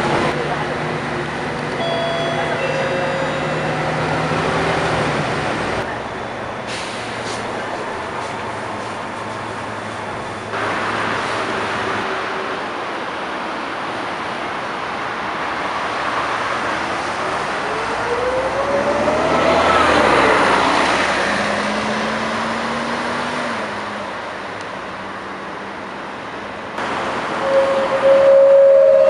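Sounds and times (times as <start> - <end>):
bus driving past: 0.0 - 29.0
engine and transmission whine: 0.0 - 29.0.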